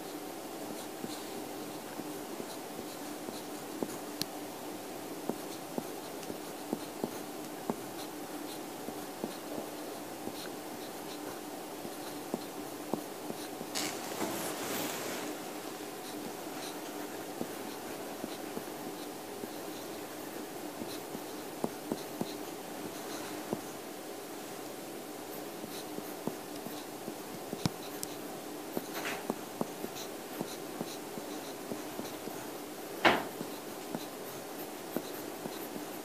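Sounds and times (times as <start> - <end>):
pen scratching on paper: 13.3 - 19.1.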